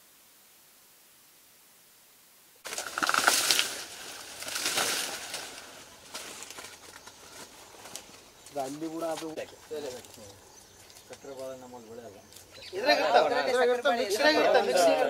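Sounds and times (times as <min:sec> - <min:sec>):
dry leaves rustling and crackling: 0:02.6 - 0:11.6.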